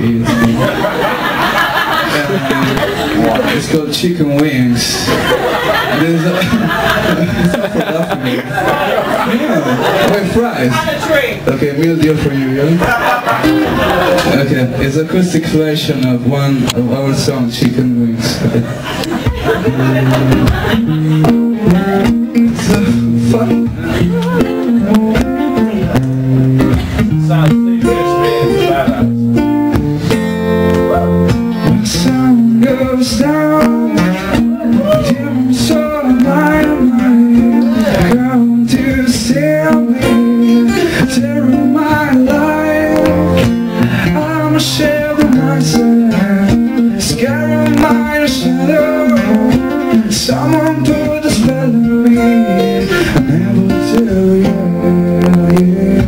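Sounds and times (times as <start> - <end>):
acoustic guitar strumming: 0.0 - 56.0
man singing into a microphone: 21.5 - 26.0, 31.0 - 56.0.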